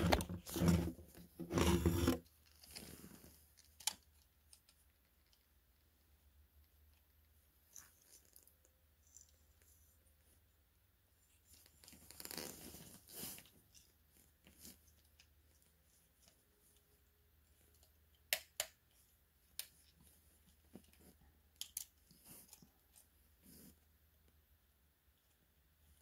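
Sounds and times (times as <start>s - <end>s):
plastic toy rustling and scraping: 0.0s - 5.4s, 11.4s - 16.9s, 18.9s - 23.9s
plastic parts clicking into place: 20.8s - 22.6s.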